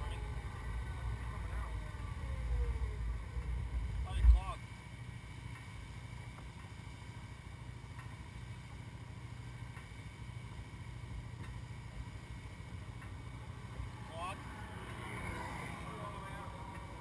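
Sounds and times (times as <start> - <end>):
atv engine idling: 0.0 - 17.0.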